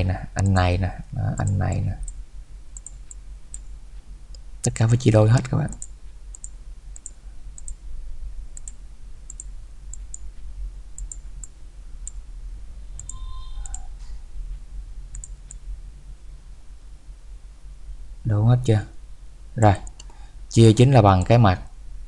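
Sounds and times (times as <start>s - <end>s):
steady low hum: 0.0s - 22.0s
computer mouse clicking: 2.8s - 3.7s, 5.4s - 7.8s, 8.6s - 10.2s, 11.0s - 12.2s, 13.0s - 13.9s, 15.1s - 15.6s, 19.8s - 20.2s
faint tone: 12.8s - 14.3s.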